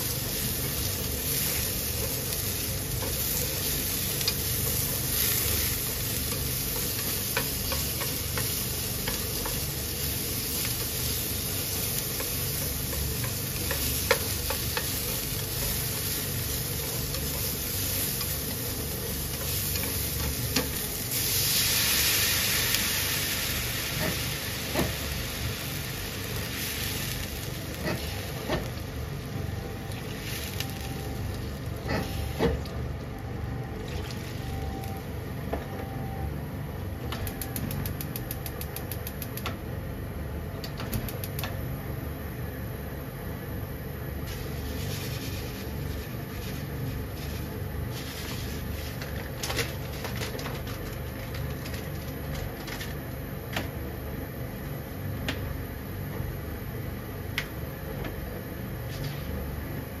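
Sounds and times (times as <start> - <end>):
food boiling in water: 0.0 - 35.3.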